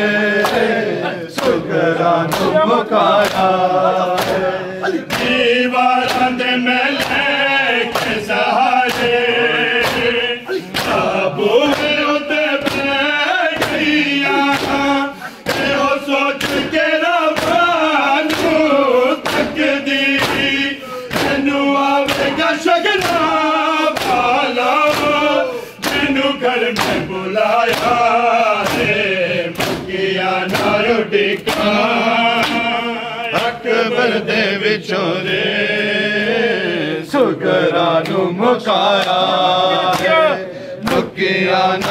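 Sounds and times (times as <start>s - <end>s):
men chanting in unison: 0.0s - 41.9s
hands slapping chest: 0.3s - 33.6s, 38.9s - 41.9s.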